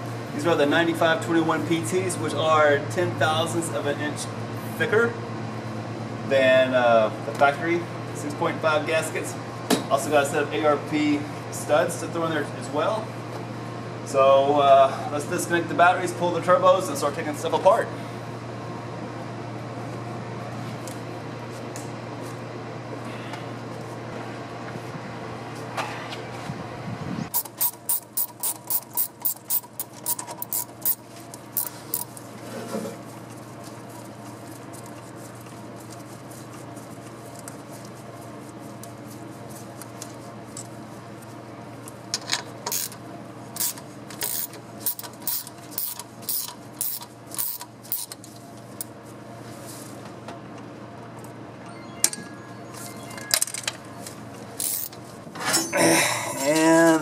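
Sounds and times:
ratchet wrench rasping clicks: 0:27.4 - 0:31.0, 0:31.6 - 0:32.1, 0:43.6 - 0:48.2, 0:54.6 - 0:55.0.

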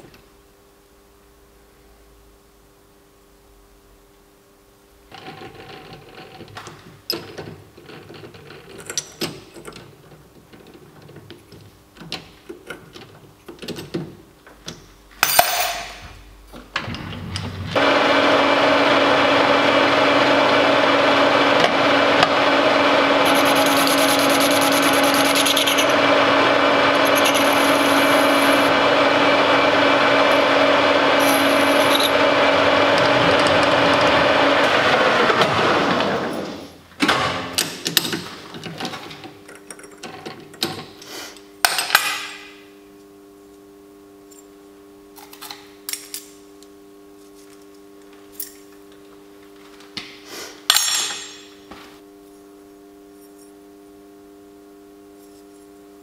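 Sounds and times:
lathe motor humming: 0:17.8 - 0:36.6.

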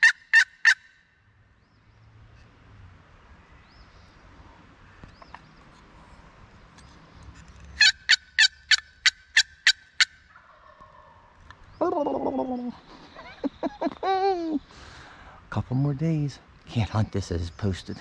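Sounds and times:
turkeys gobbling: 0:00.0 - 0:00.9, 0:07.8 - 0:14.3.

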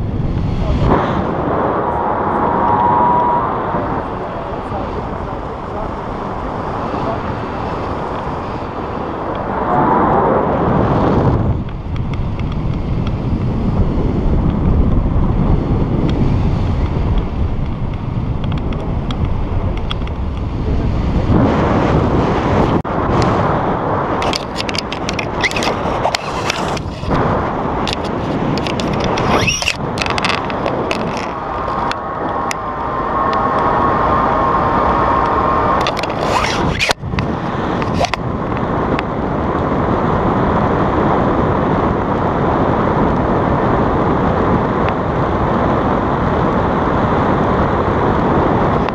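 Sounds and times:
wind buffeting microphone: 0:00.0 - 0:48.9
sharp clicks and rattles: 0:24.2 - 0:27.2, 0:27.8 - 0:32.6, 0:35.8 - 0:38.2.

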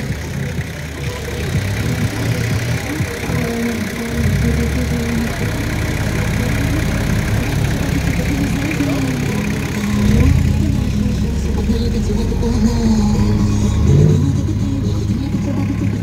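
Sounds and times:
off-road vehicle engine at low revs: 0:00.0 - 0:16.0.

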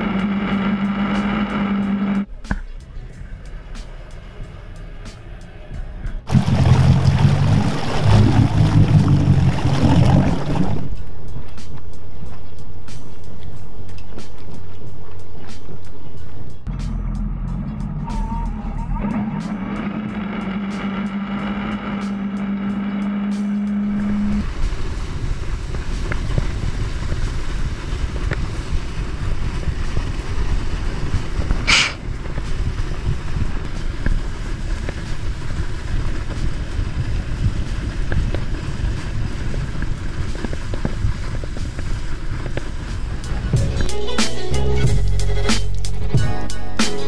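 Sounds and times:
steady low hum: 0:06.2 - 0:35.1
water and wind rushing: 0:06.3 - 0:16.4, 0:21.4 - 0:43.9
sharp crack: 0:31.4 - 0:32.7.

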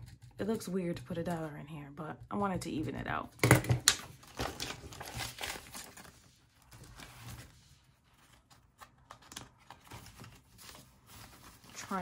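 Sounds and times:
paper banknotes rustling: 0:04.2 - 0:12.0.

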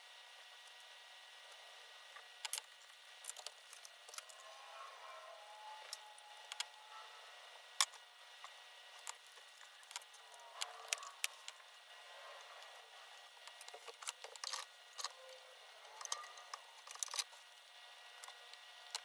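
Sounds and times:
faint wavering tones: 0:03.7 - 0:17.3.

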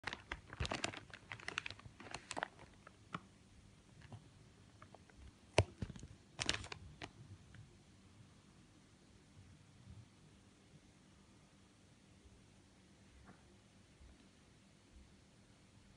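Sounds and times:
plastic mailer bag crinkling: 0:00.0 - 0:03.2, 0:04.8 - 0:07.2.

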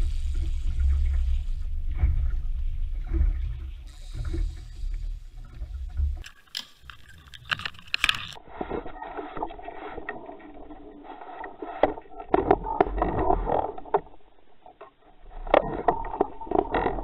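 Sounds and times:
water lapping at hull: 0:00.0 - 0:17.0
sharp clicks: 0:06.2 - 0:08.4.

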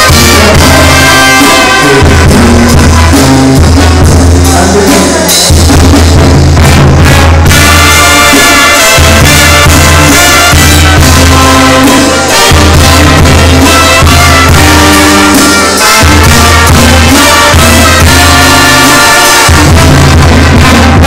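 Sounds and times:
brass band playing: 0:00.0 - 0:21.0
drum and cymbal: 0:00.0 - 0:21.0
trumpets and clarinets melody: 0:00.0 - 0:21.0
tuba bass line: 0:00.0 - 0:21.0.

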